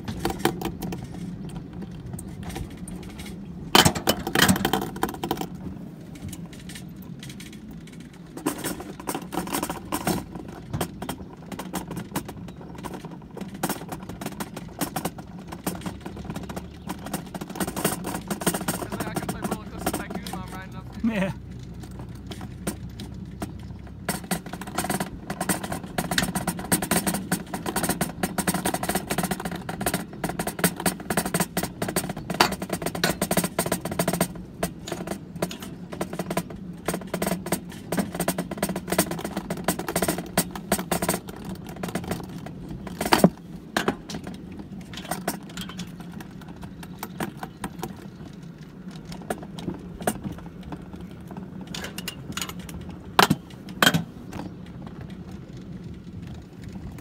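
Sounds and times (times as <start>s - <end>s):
sled rattling down metal track: 0.0s - 57.0s.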